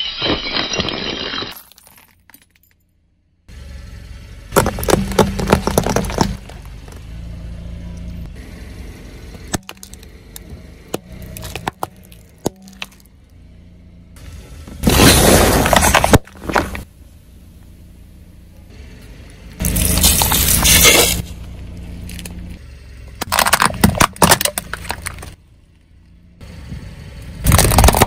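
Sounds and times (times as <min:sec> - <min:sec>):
car rumble: 0:00.0 - 0:28.0
tyre crushing plastic and metal: 0:04.6 - 0:07.0, 0:09.4 - 0:10.0, 0:10.9 - 0:13.1, 0:14.8 - 0:16.8, 0:23.2 - 0:25.4, 0:27.5 - 0:28.0.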